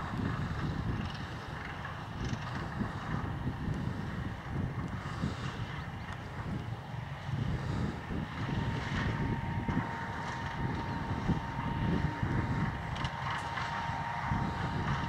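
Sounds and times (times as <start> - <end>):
diesel locomotive whine: 0.0 - 15.0
wind buffeting microphone: 0.0 - 15.0.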